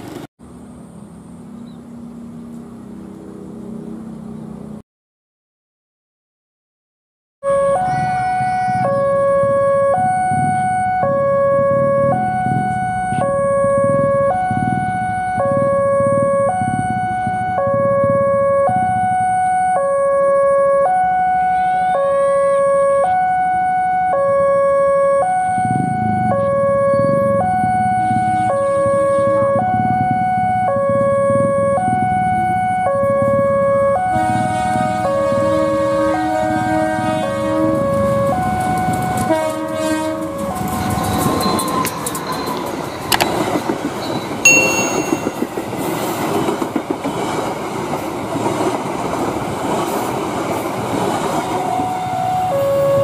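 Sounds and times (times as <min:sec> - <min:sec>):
two-tone level crossing alarm: 0:07.4 - 0:36.2, 0:40.3 - 0:45.9, 0:51.5 - 0:53.0
diesel locomotive rumble: 0:25.4 - 0:53.0.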